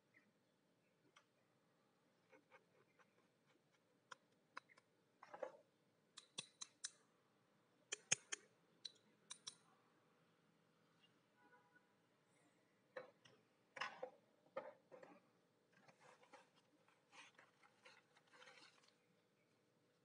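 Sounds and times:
metallic clicks and taps: 0:06.2 - 0:07.0, 0:07.9 - 0:09.6.

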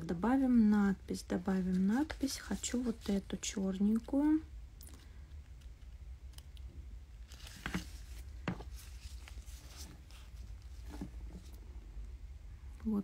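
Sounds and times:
steady low hum: 0:00.0 - 0:13.0
faint rustling: 0:00.7 - 0:04.1, 0:07.2 - 0:12.1.

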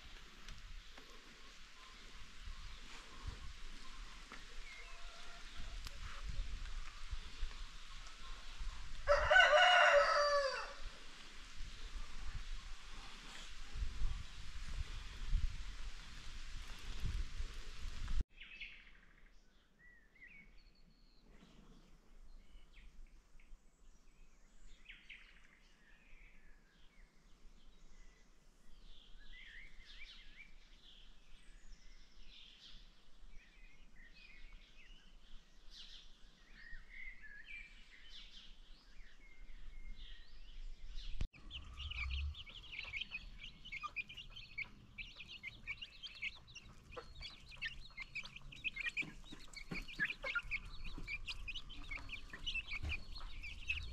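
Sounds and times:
baby chicks peeping: 0:41.4 - 0:53.9.

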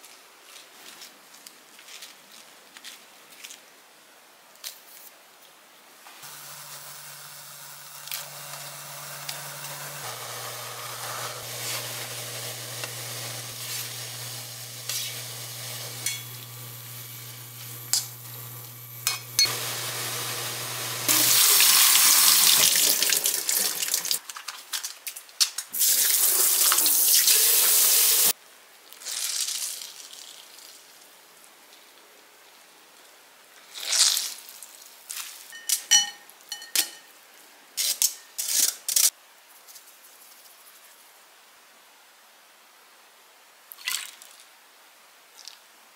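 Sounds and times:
low cooktop hum: 0:06.1 - 0:24.9, 0:35.5 - 0:37.2
metal tongs clinking: 0:16.0 - 0:16.5, 0:17.9 - 0:18.3, 0:19.0 - 0:19.5, 0:35.5 - 0:37.1.

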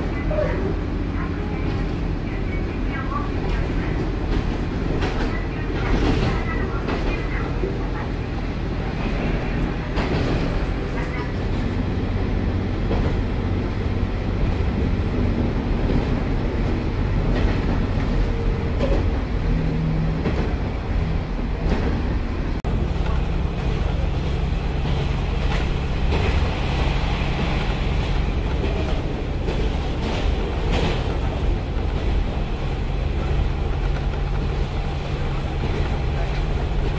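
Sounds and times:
train running rumble: 0:00.0 - 0:36.9
diesel engine drone: 0:07.3 - 0:36.9.

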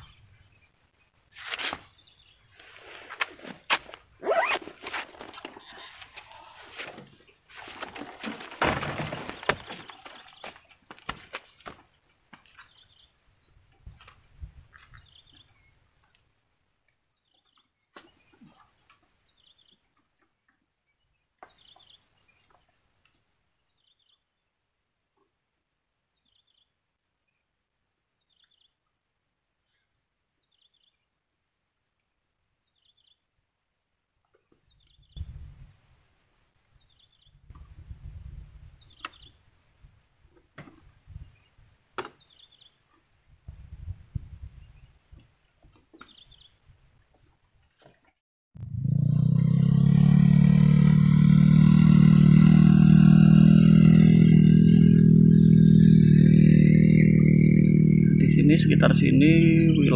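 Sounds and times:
bird chirping: 0:20.8 - 0:27.4, 0:41.2 - 0:43.6, 0:56.8 - 0:59.9
insect whine: 0:50.0 - 0:59.9.

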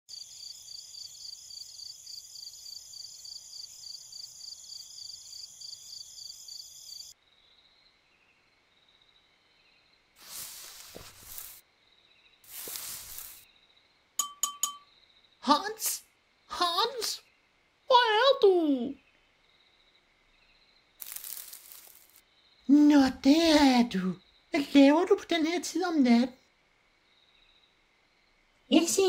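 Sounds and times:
crickets chirping: 0:00.1 - 0:26.0, 0:26.6 - 0:29.0
distant insects: 0:00.1 - 0:29.0
dry grass rustling: 0:10.2 - 0:11.6, 0:12.5 - 0:13.4, 0:21.0 - 0:22.2.

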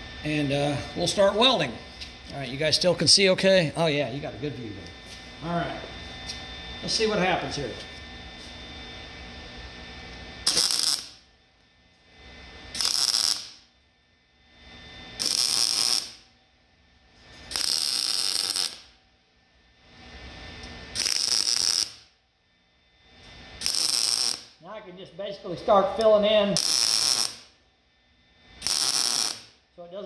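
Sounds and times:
welder crackling arc: 0:00.0 - 0:04.9, 0:10.1 - 0:19.1, 0:19.8 - 0:22.2, 0:23.1 - 0:27.6, 0:28.4 - 0:30.0.

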